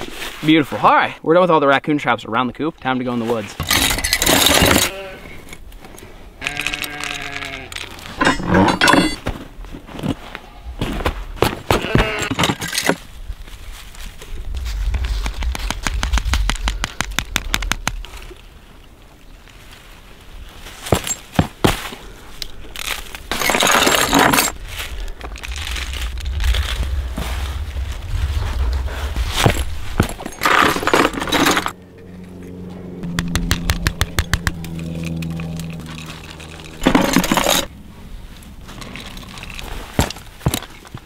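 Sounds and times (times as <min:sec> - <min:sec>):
rattling and crunching: 0:03.5 - 0:05.0, 0:06.4 - 0:19.7, 0:20.7 - 0:31.8, 0:33.3 - 0:41.0
metal chains rattling and clinking: 0:03.6 - 0:05.0, 0:08.2 - 0:09.2, 0:23.3 - 0:24.6, 0:30.0 - 0:31.8, 0:35.5 - 0:37.7
sharp metallic knocks: 0:33.0 - 0:34.8.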